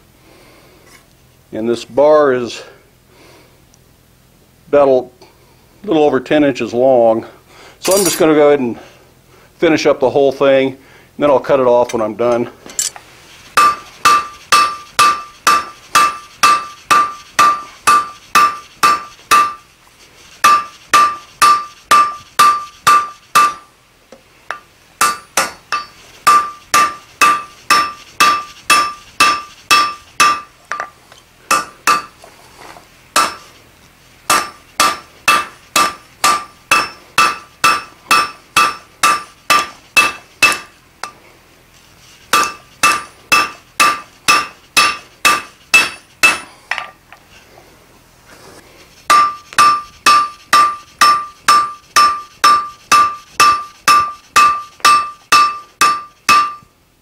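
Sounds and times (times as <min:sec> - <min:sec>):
hammer striking metal on anvil: 0:07.8 - 0:08.3, 0:13.6 - 0:19.6, 0:20.4 - 0:23.7, 0:24.5 - 0:30.9, 0:31.5 - 0:32.2, 0:33.2 - 0:33.5, 0:34.3 - 0:41.2, 0:42.3 - 0:46.9, 0:49.1 - 0:56.7.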